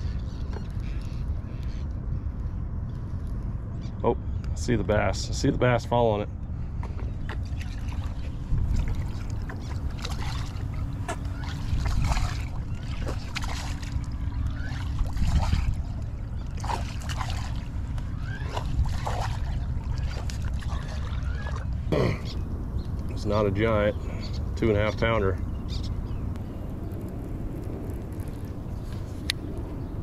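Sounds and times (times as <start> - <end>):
wind and water rumble: 0.0 - 30.0
electric trolling motor humming: 7.5 - 16.6.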